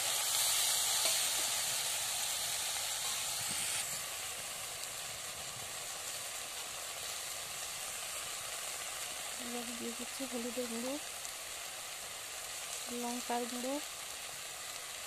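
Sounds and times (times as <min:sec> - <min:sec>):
food sizzling in a wok: 0:00.0 - 0:15.0.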